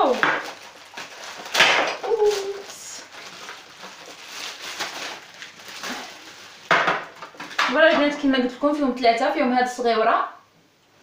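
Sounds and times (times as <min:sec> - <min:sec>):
plastic wrapping rustling: 0:00.0 - 0:08.4.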